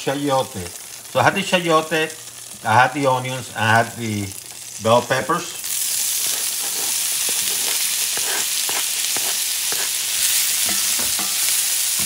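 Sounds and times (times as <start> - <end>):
vegetables sizzling in oil: 0.0 - 12.0
wooden spoon scraping a pan: 6.0 - 12.0.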